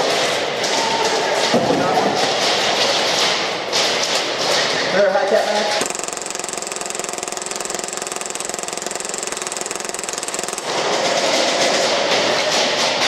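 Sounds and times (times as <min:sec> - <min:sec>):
airsoft pistol firing full auto: 0:05.8 - 0:11.7
loud irregular noise: 0:05.8 - 0:13.0.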